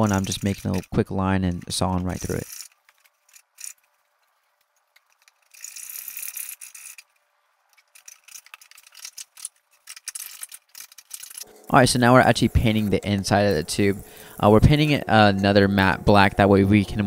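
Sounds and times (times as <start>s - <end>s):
small irregular clicks and rattles: 0.0s - 11.5s.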